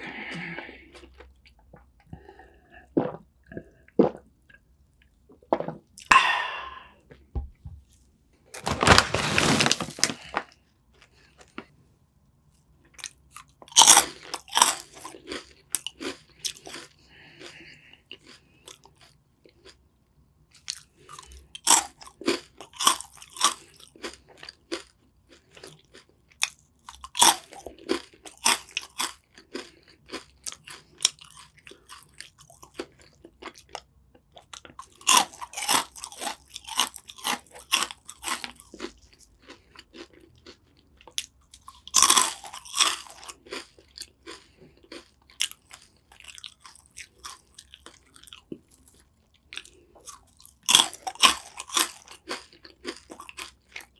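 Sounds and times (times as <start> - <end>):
crunchy snack chewing: 12.9 - 19.8, 20.5 - 53.9.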